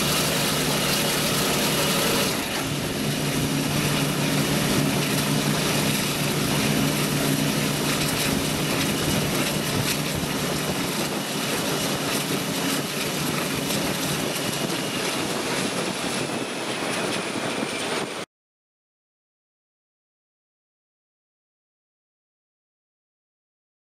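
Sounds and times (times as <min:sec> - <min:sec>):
locomotive engine drone: 0:00.0 - 0:18.3
train wheel noise: 0:00.0 - 0:18.3
wind rushing: 0:01.2 - 0:18.2.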